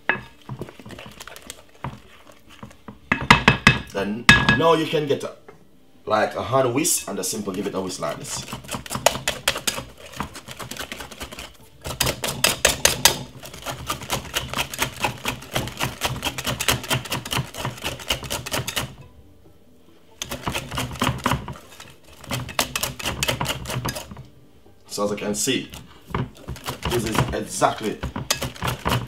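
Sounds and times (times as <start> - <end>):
whisk clicking against glass bowl: 7.3 - 19.0, 20.2 - 24.2, 25.6 - 29.0.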